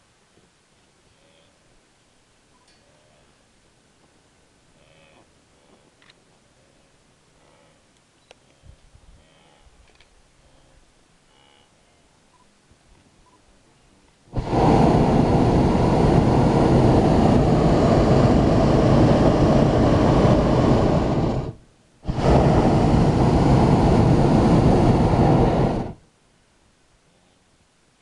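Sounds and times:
propane burner blasts: 0:14.3 - 0:26.0.

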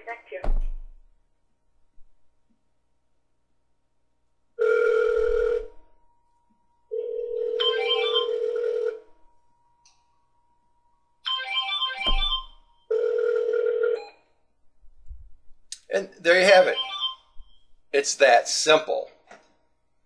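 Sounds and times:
telephone ring tone: 0:04.6 - 0:05.9, 0:06.9 - 0:09.4, 0:11.2 - 0:14.3, 0:16.7 - 0:17.4
melodic ringtone: 0:06.9 - 0:09.0, 0:11.2 - 0:14.0, 0:16.7 - 0:17.4.

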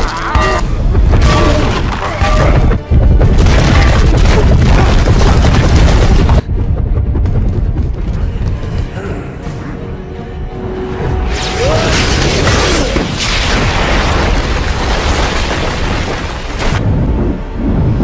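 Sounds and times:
film music score: 0:00.0 - 0:18.0
heavy booms and crashes: 0:00.8 - 0:08.2.

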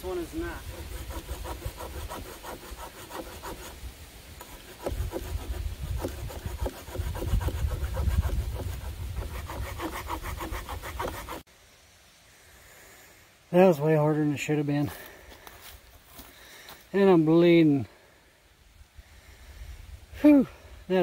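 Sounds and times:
hand saw cutting log: 0:00.0 - 0:11.5.

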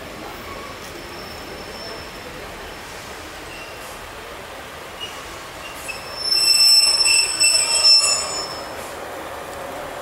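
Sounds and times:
low train rumble: 0:00.0 - 0:10.0
train wheels squealing: 0:00.4 - 0:02.3, 0:03.5 - 0:03.9, 0:05.0 - 0:08.9.

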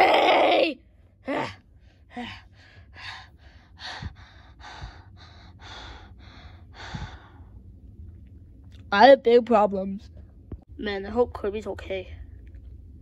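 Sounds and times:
person panting: 0:01.8 - 0:07.5.

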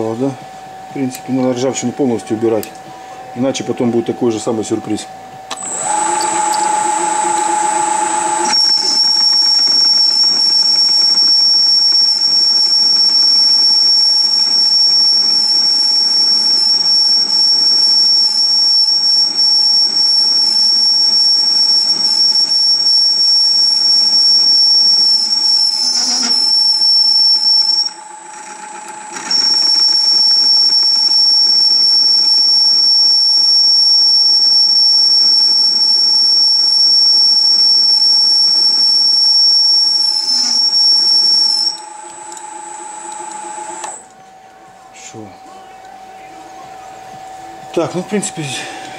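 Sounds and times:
lathe running hum: 0:00.0 - 0:48.9
cutting tool high-pitched whistle: 0:05.5 - 0:44.1.

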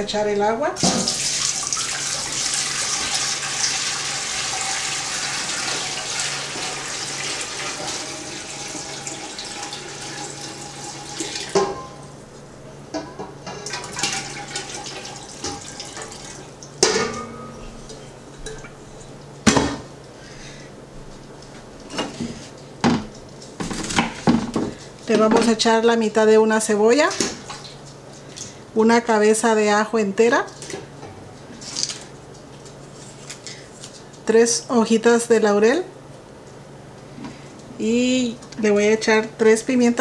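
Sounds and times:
water pouring into metal pot: 0:00.8 - 0:11.6, 0:13.7 - 0:16.5
metal cookware knocks: 0:16.8 - 0:17.6.

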